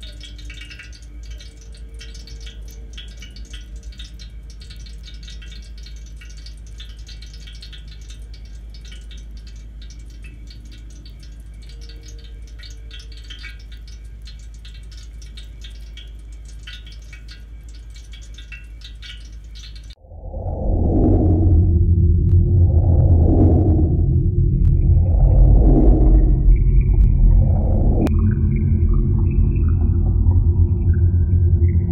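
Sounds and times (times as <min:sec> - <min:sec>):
campfire embers crackling: 0:00.0 - 0:20.0
low steady rumble: 0:00.0 - 0:31.9
loud low sound: 0:20.0 - 0:31.9.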